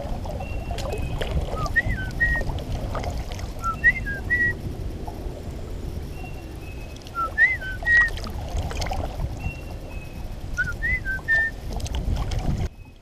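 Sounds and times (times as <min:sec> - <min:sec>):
moving water: 0:00.0 - 0:13.0
wind: 0:00.0 - 0:13.0
songbird whistling: 0:00.4 - 0:02.5, 0:03.6 - 0:04.6, 0:06.1 - 0:08.2, 0:09.4 - 0:11.6.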